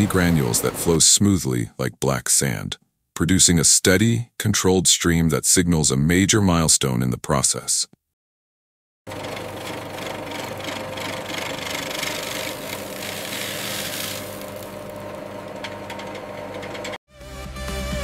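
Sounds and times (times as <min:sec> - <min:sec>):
grinding mill hum: 0:09.1 - 0:17.0.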